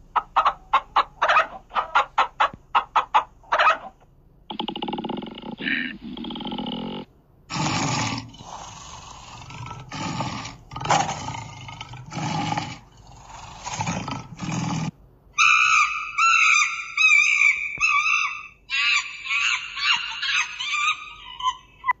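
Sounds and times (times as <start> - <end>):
bird calling: 0.0 - 7.0, 15.4 - 22.0
large animal rough calls: 0.0 - 18.4.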